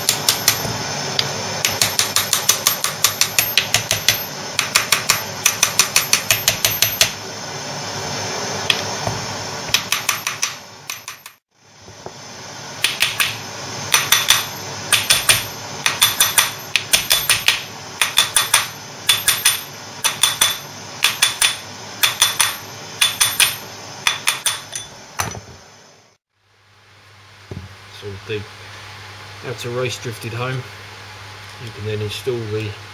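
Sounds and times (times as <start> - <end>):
hammer tapping on metal: 0.0 - 7.2, 9.7 - 11.4, 12.8 - 25.4.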